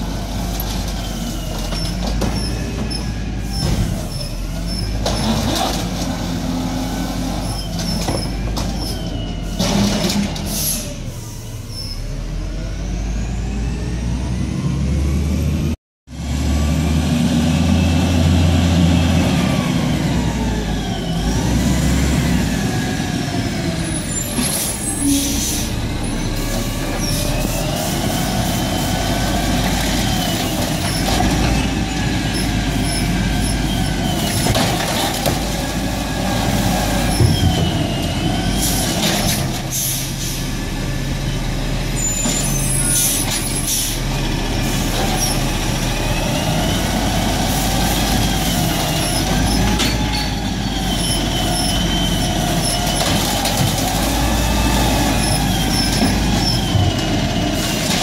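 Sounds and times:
air brake hisses: 0:10.5 - 0:11.7
garbage truck engine revving: 0:12.0 - 0:58.0.

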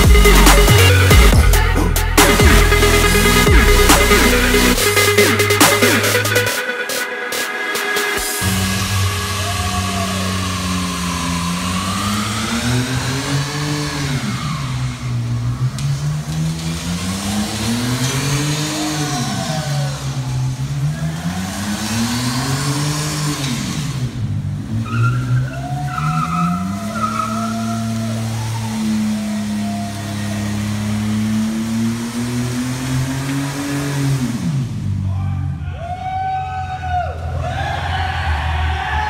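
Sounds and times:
car engine revving: 0:00.0 - 0:35.6
tyres squealing: 0:24.7 - 0:31.4.

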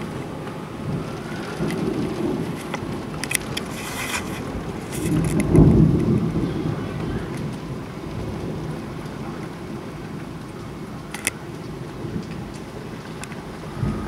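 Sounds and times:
raindrops ticking on window glass: 0:00.0 - 0:14.0
steady rain: 0:00.0 - 0:14.0
thunder rolling: 0:00.0 - 0:14.0.

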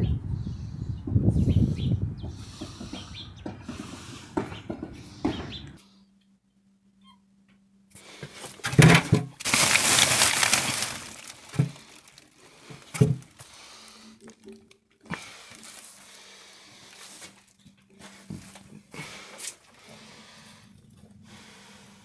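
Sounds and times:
rustling and handling noise: 0:08.0 - 0:20.1.

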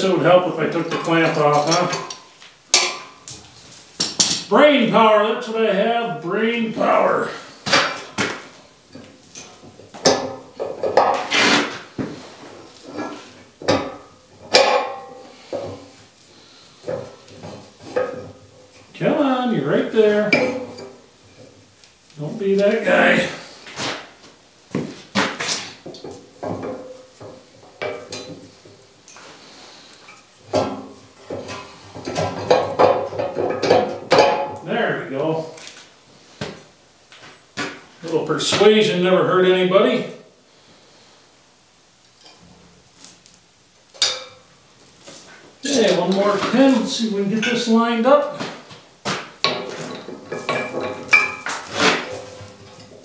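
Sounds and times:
heavy steel parts clanking: 0:00.8 - 0:03.3, 0:20.2 - 0:21.5, 0:49.4 - 0:53.0
metal knocks: 0:13.0 - 0:15.9, 0:20.3 - 0:21.0, 0:30.5 - 0:34.6
metal pin clanking and scraping: 0:49.4 - 0:53.0.

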